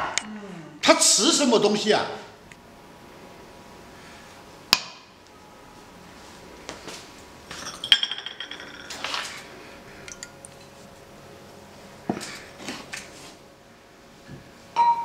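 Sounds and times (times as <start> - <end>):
bowls and pots clinking: 7.5 - 9.2, 10.1 - 10.5.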